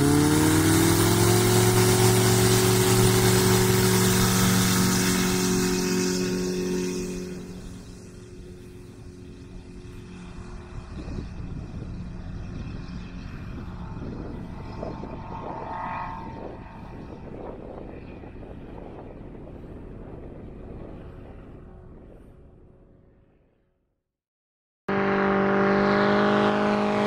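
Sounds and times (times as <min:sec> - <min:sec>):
light aircraft engine and propeller: 0:00.0 - 0:24.0, 0:24.9 - 0:27.0.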